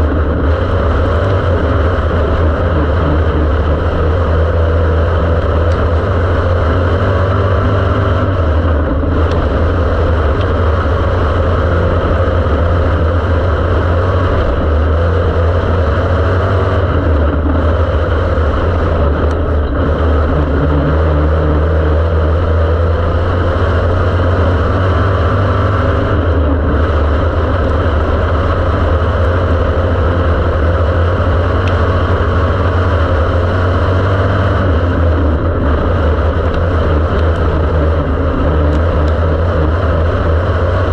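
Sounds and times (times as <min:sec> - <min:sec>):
race car engine drone: 0:00.0 - 0:40.9.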